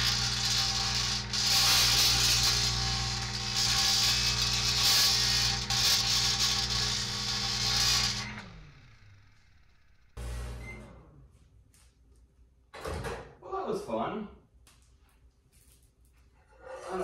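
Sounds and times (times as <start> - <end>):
microwave oven hum: 0.0 - 11.1.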